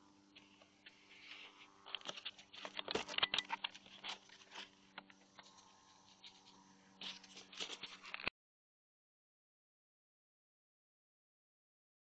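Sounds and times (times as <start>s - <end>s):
faint electrical hum: 0.0s - 8.3s
scratching and tapping on camera: 0.4s - 8.3s.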